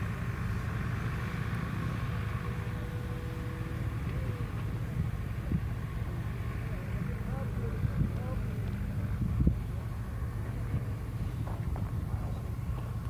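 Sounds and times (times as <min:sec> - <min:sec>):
wind buffeting microphone: 0:07.0 - 0:13.0.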